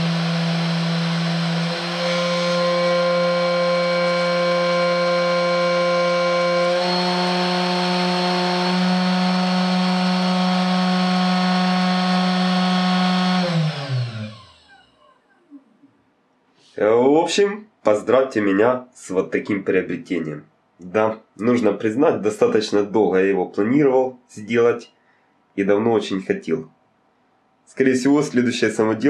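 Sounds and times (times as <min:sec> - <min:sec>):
motor winding down: 0:00.0 - 0:15.0
spindle motor whining: 0:00.0 - 0:15.0.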